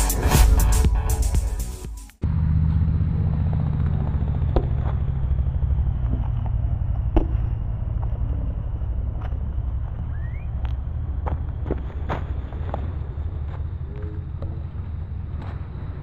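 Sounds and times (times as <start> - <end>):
intro music: 0.0 - 2.2
basketball bouncing on concrete: 4.5 - 4.9, 7.0 - 7.5.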